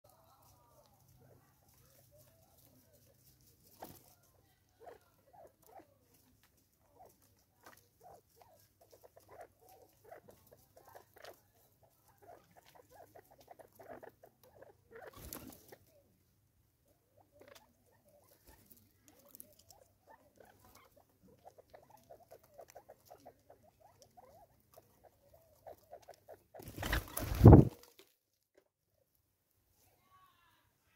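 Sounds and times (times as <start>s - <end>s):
birds pecking at a feeder: 0.1s - 16.2s, 17.0s - 28.2s.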